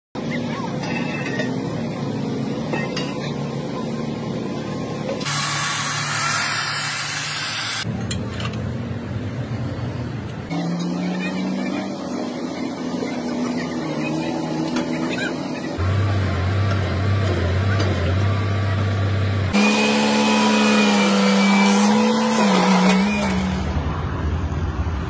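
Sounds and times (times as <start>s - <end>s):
loud hiss: 5.2s - 7.8s
heavy machinery engines running: 7.8s - 25.0s.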